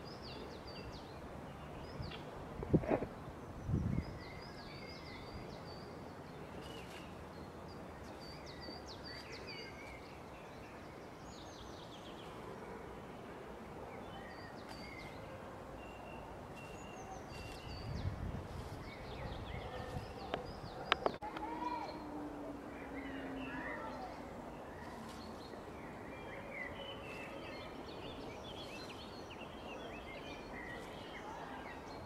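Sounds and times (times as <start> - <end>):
songbirds chirping and trilling: 0.0 - 32.0
low rustle: 16.3 - 20.9.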